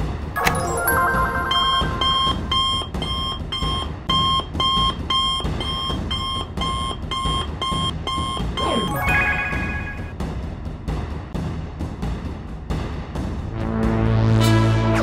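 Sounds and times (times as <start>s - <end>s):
electronic alarm beeping: 0.4s - 10.1s.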